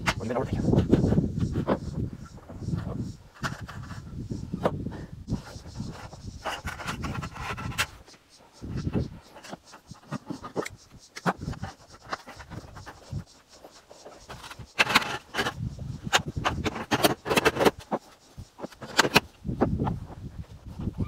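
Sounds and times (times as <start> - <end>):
knocks clanks and scrapes: 0.0 - 20.0
sharp clatter: 8.8 - 19.3.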